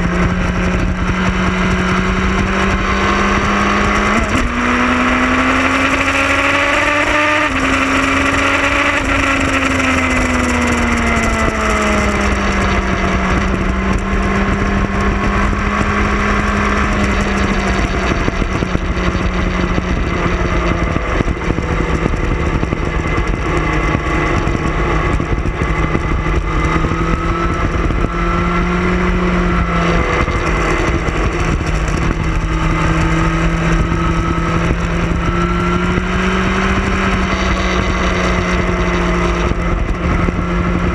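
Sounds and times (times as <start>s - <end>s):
motorcycle engine running: 0.0s - 40.9s
wind rumble on microphone: 0.0s - 40.9s.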